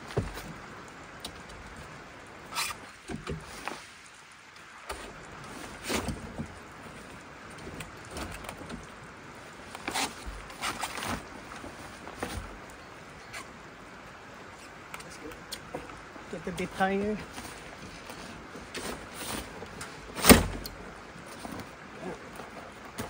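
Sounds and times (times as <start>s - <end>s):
knocks and clicks of tent fittings: 0.0s - 1.5s
steady background hiss: 0.0s - 23.0s.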